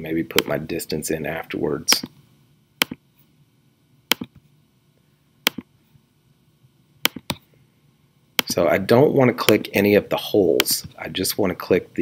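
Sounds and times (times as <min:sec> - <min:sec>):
computer mouse clicking: 0:04.1 - 0:04.4, 0:05.5 - 0:05.7, 0:07.0 - 0:07.4.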